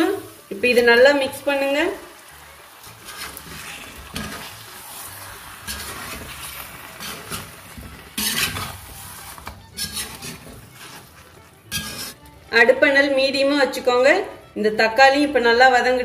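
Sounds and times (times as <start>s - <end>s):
oil sizzling: 0.0s - 12.6s
spatula scraping a pan: 2.1s - 12.3s.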